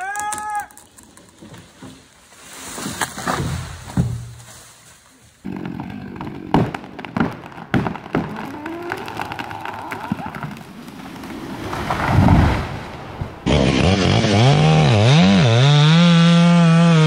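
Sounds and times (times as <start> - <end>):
sharp cracks and knocks: 0.0 - 2.1, 2.7 - 4.7, 5.5 - 13.3
branches rustling: 0.6 - 13.5
tree hitting ground thud: 2.8 - 4.7.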